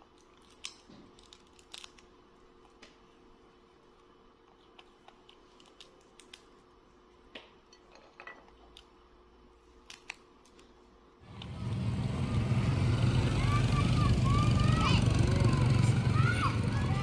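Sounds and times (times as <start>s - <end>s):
peanut shells cracking: 0.0s - 2.8s, 4.5s - 6.6s, 9.7s - 10.7s
motorbike traffic: 11.2s - 17.0s.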